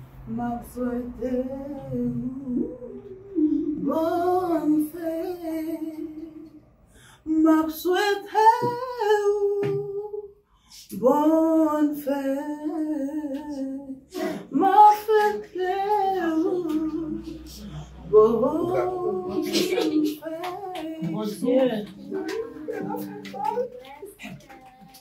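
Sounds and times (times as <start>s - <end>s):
woman singing unaccompanied: 0.2s - 6.6s, 7.3s - 10.3s, 10.9s - 25.0s
singer breathing: 6.8s - 7.3s.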